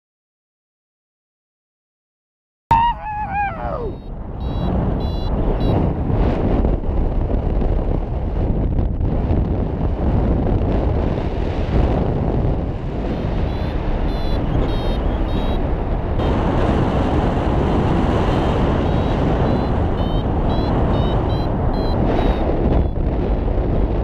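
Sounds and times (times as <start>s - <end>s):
wind buffeting microphone: 2.7s - 24.0s
short high beeps: 3.9s - 5.8s, 13.5s - 15.6s, 18.8s - 23.0s.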